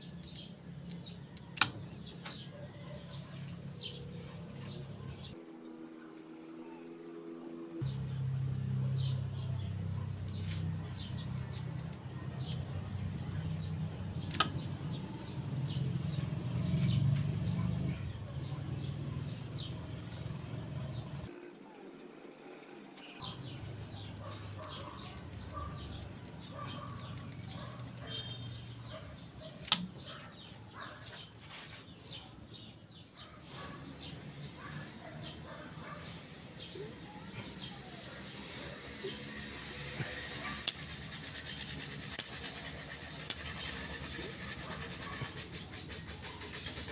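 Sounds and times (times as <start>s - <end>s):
birds chirping: 0.0s - 46.9s
toy bow snapping: 0.2s - 1.8s, 14.2s - 14.6s, 29.6s - 30.0s.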